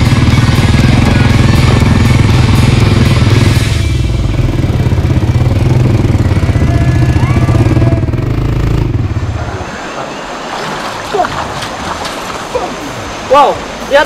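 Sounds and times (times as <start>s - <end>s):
quad bike engine throbbing: 0.0s - 9.5s
stream rushing: 0.0s - 14.0s.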